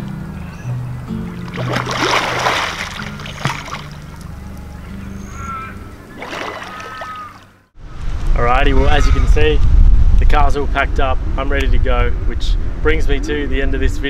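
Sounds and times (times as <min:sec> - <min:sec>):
soft background music: 0:00.0 - 0:06.6
water splashing from swimmer: 0:01.4 - 0:04.3, 0:06.2 - 0:07.5
short bird calls: 0:04.7 - 0:07.5.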